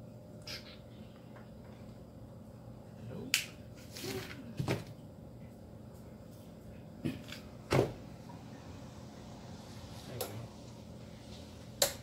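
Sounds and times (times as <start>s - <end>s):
faint background hum: 0.0s - 12.0s.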